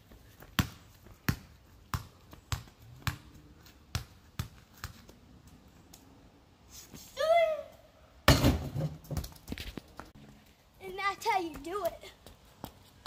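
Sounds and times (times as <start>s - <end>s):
basketball bouncing on concrete: 0.4s - 5.1s, 8.3s - 10.1s.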